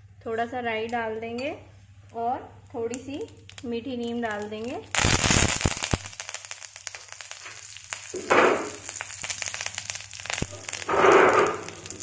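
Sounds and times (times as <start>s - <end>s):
crackling pops: 2.0s - 12.0s
seeds sizzling in hot oil: 2.0s - 12.0s.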